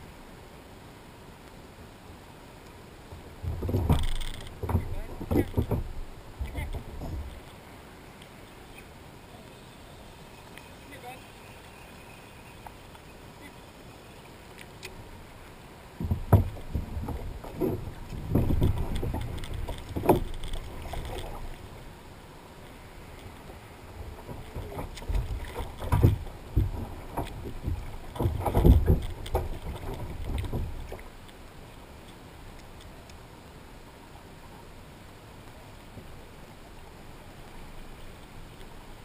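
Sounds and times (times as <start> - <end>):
water splashing: 2.7 - 32.8.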